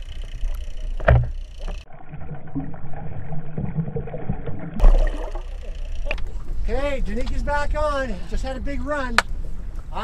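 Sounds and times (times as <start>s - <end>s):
water splash: 1.9s - 6.2s.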